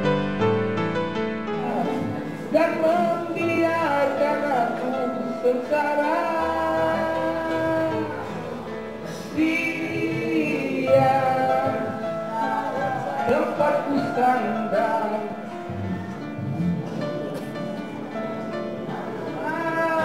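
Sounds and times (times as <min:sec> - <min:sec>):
person singing long notes: 0:01.6 - 0:16.8, 0:19.3 - 0:20.0.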